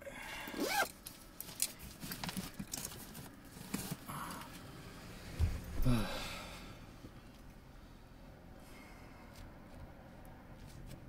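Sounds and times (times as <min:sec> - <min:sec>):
small clicks and rustles: 0:00.9 - 0:04.6
low thump: 0:05.4 - 0:05.9
man sighing: 0:05.7 - 0:06.9.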